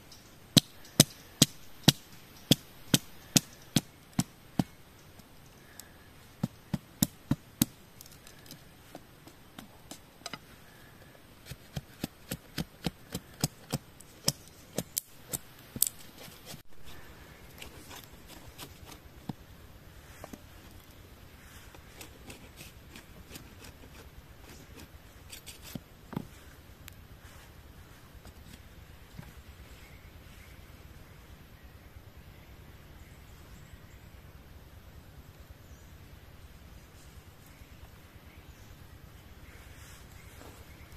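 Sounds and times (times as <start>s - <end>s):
machete chopping bamboo: 0.6s - 4.8s, 6.4s - 7.8s, 11.4s - 16.6s.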